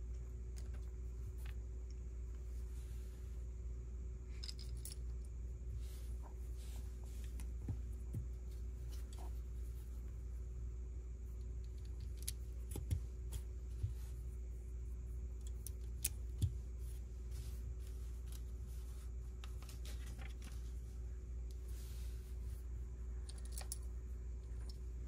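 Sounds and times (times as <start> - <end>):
low steady hum: 0.0 - 25.0
soft rustling: 4.6 - 10.6, 11.2 - 23.0.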